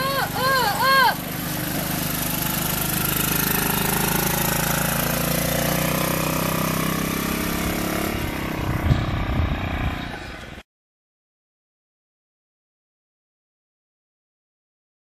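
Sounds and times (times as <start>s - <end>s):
small petrol engine running: 0.0s - 10.6s.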